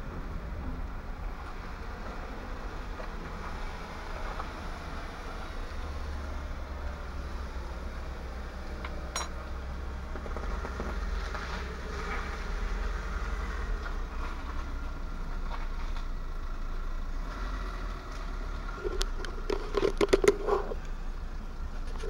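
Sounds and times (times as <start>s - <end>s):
sharp knocks and clicks: 18.8s - 20.5s.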